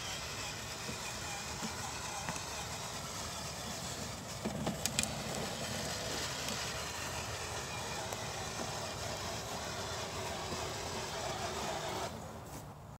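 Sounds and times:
toy electric motor drone: 0.0s - 12.4s
plastic wheels rolling on grass: 0.0s - 13.0s.

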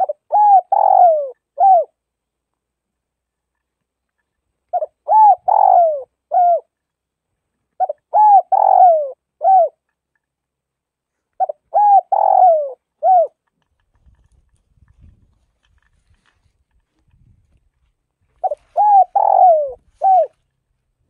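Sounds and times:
dove cooing: 0.0s - 2.0s, 4.7s - 6.8s, 7.8s - 9.8s, 11.4s - 13.4s, 18.4s - 20.4s.

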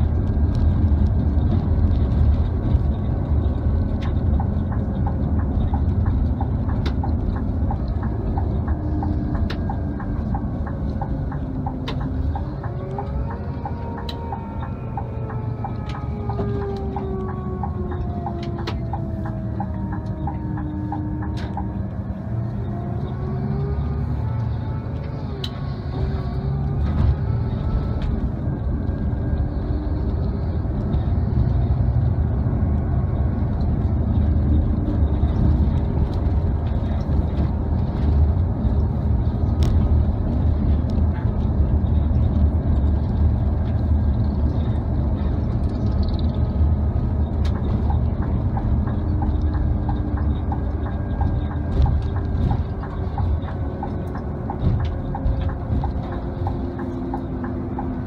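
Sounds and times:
coach engine and road noise: 0.0s - 58.0s
regular ticking: 46.0s - 58.0s.

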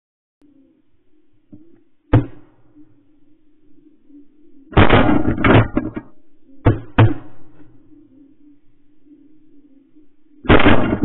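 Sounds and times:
shotgun shots: 4.8s - 5.7s, 10.5s - 11.0s.

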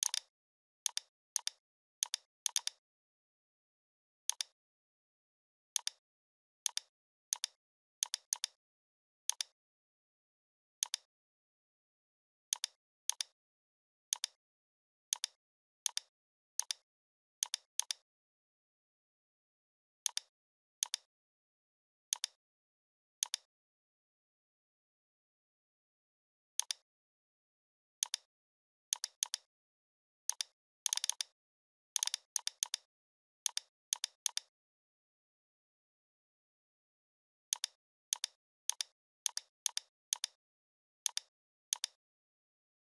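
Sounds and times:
computer mouse clicks: 0.0s - 0.3s, 0.9s - 2.8s, 4.3s - 4.6s, 5.8s - 6.0s, 6.6s - 8.6s, 9.3s - 9.6s, 10.8s - 11.1s, 12.5s - 13.4s, 14.1s - 14.4s, 15.1s - 16.8s, 17.4s - 18.0s, 20.0s - 21.1s, 22.1s - 22.4s, 23.2s - 23.5s, 26.6s - 26.8s, 28.0s - 28.3s, 28.9s - 29.5s, 30.3s - 31.4s, 32.0s - 34.5s, 37.5s - 40.4s, 41.0s - 42.0s.

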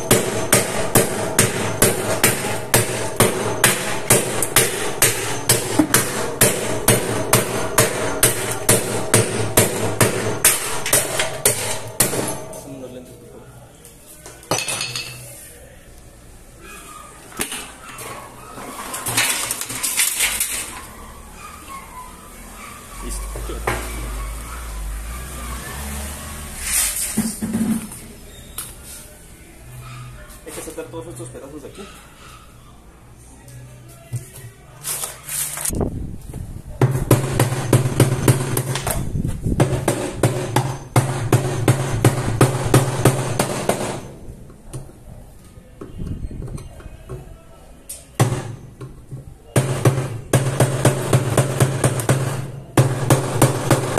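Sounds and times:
hammer striking chisel: 0.0s - 12.6s, 49.6s - 53.9s
metal and plastic clattering: 18.6s - 20.8s.

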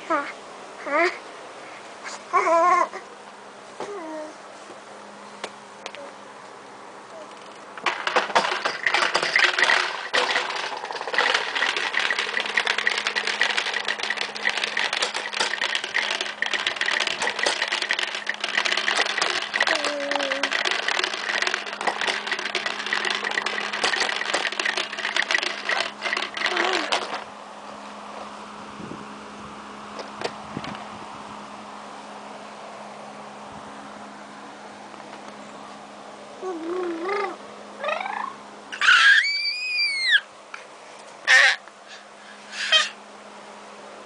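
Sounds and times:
baby cooing: 2.1s - 3.1s, 3.8s - 4.4s, 36.4s - 38.4s
spinning toy whirring and clattering: 7.4s - 27.3s, 41.3s - 41.6s, 42.5s - 43.0s.

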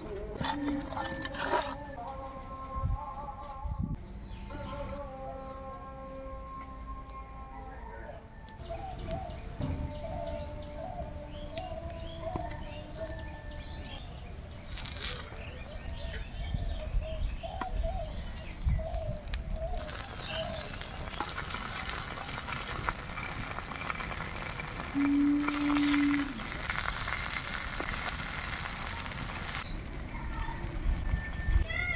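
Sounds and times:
birds chirping: 4.0s - 31.9s
fish frying in hot oil: 19.8s - 29.6s.

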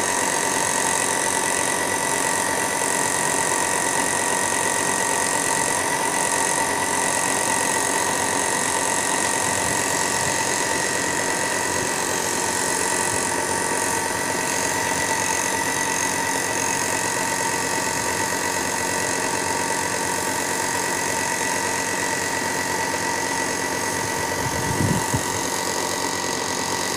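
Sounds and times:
air compressor running: 0.0s - 26.9s.

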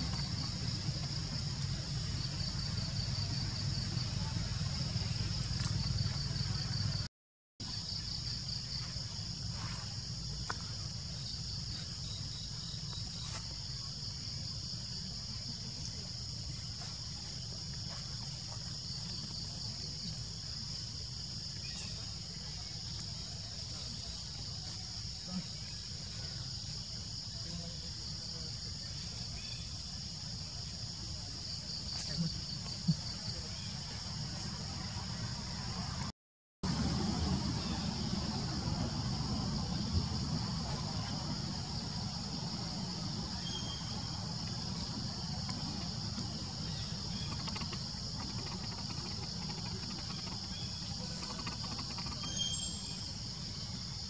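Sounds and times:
low outdoor rumble: 0.0s - 7.1s, 32.0s - 54.0s
insects chorus: 0.0s - 54.0s.

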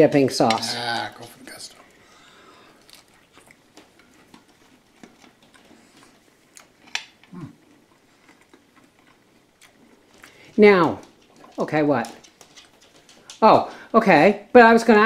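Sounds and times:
person chewing: 0.5s - 11.6s.

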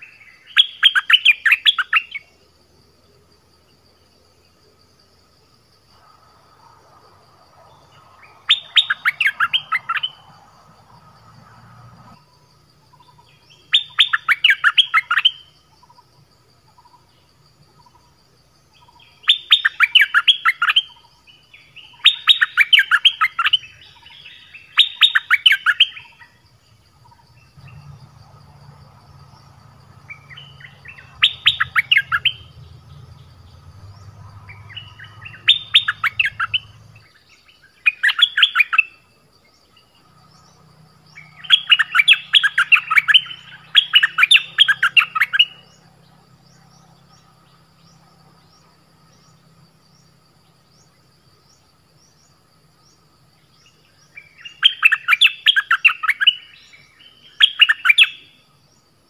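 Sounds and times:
songbirds singing: 0.0s - 59.0s
faint low rumble: 26.5s - 37.1s.

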